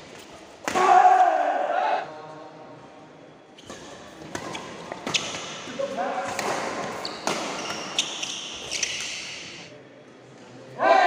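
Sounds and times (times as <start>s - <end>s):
shoes squeaking on floor: 3.6s - 5.7s, 6.8s - 9.7s
racket hitting shuttlecock: 6.2s - 9.0s.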